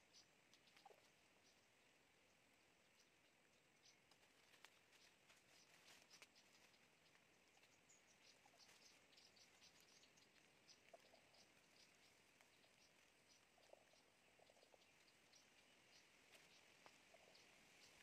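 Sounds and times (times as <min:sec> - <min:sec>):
dry bamboo leaves crackling: 0:04.1 - 0:07.3.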